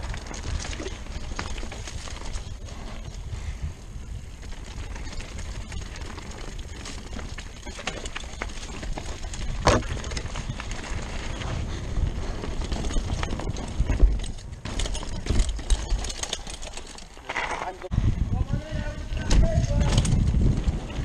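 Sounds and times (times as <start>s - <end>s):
mountain bike knocks and rattles: 4.4s - 11.6s, 12.2s - 17.9s, 19.1s - 21.0s.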